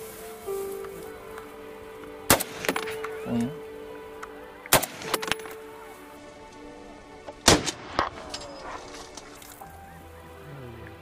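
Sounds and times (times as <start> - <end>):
background music: 0.0 - 11.0
rifle shots: 2.3 - 3.0, 4.7 - 5.5, 7.4 - 8.3.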